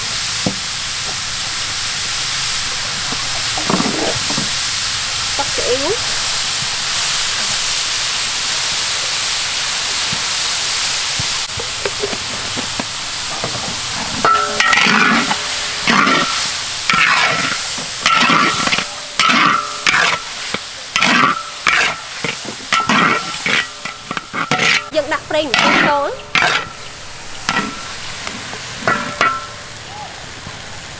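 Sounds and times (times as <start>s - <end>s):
vegetables sizzling in a wok: 0.0s - 30.9s
metal spatula scraping a wok: 11.5s - 29.6s.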